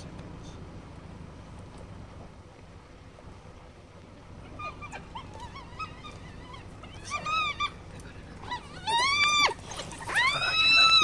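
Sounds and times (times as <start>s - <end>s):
wild dogs squealing and twittering: 4.3s - 11.0s.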